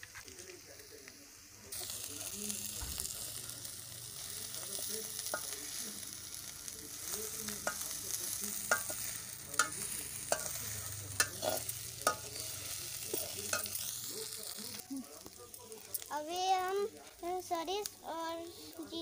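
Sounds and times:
masala sizzling in oil: 0.0s - 19.0s
spatula scraping and clinking pan: 8.6s - 13.8s.

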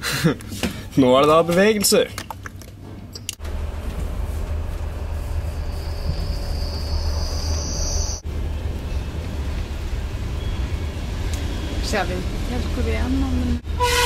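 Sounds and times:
train running rumble: 3.4s - 14.0s
high-pitched squeal: 5.4s - 8.2s.

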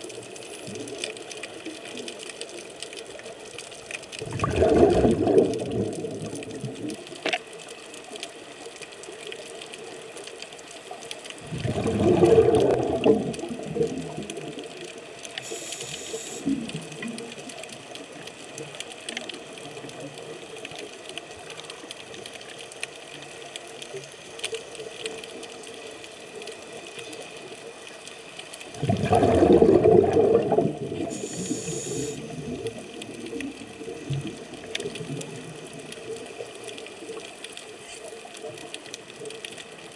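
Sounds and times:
faint underwater hiss: 0.0s - 39.9s
bubbling diver exhalations: 4.2s - 6.6s, 11.4s - 14.3s, 28.8s - 32.8s
diver inhaling hiss: 15.4s - 16.7s, 31.0s - 32.3s.

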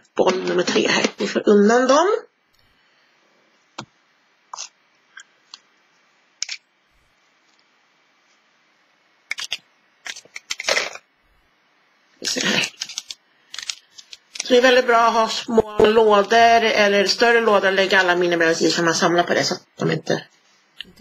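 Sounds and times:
plastic miniatures clicking: 9.3s - 10.7s, 12.6s - 14.5s
rattling and rustling of miniatures: 9.3s - 11.0s, 12.2s - 14.6s.

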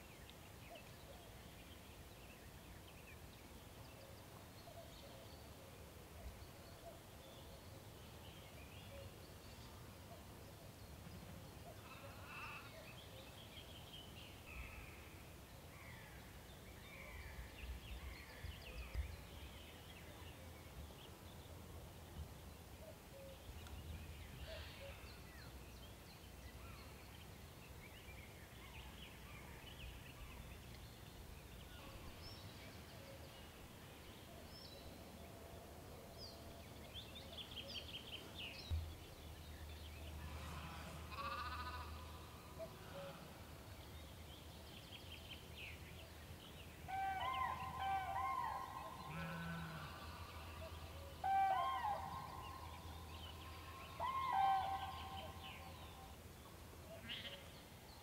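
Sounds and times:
soft low thumps: 38.7s - 39.2s
mouflon bleating: 40.3s - 42.2s, 49.1s - 50.6s.

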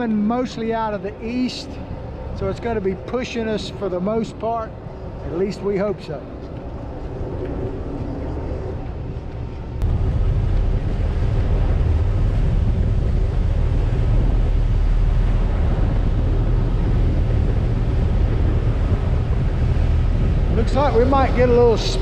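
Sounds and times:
wind buffeting microphone: 0.0s - 22.0s
boat engine running: 7.8s - 22.0s
water rushing past hull: 9.8s - 22.0s.

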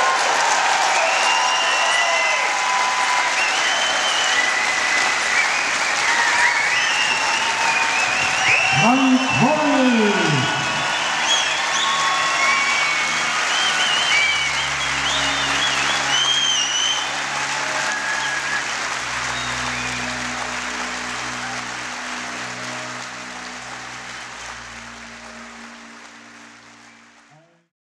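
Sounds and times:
audience applauding: 0.0s - 27.7s
background music with held chords: 2.9s - 27.3s
high whistling: 3.3s - 9.4s, 10.6s - 17.2s.

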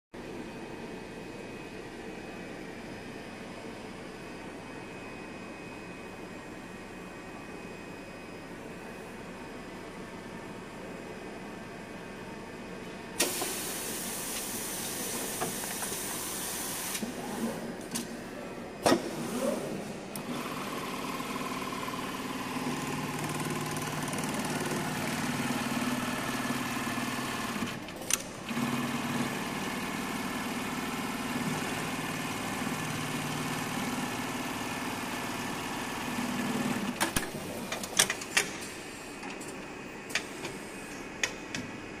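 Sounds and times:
sewing machine humming: 19.2s - 37.0s.

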